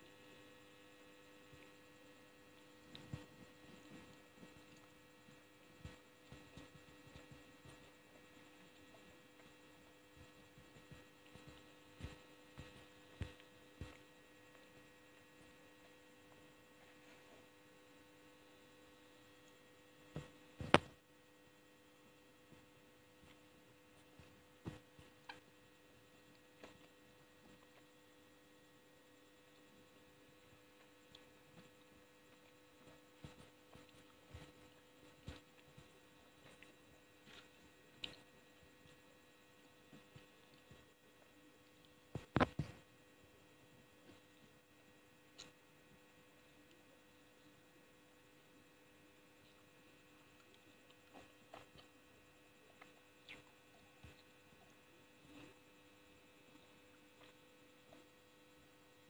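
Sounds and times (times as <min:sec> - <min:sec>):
faint electrical hum: 0:00.0 - 0:59.0
mouth chewing gummy candy: 0:30.4 - 0:41.0, 0:49.4 - 0:58.2.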